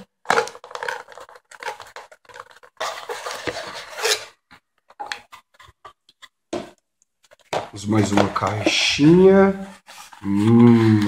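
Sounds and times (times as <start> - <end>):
cardboard scraping and rubbing: 7.2 - 10.4.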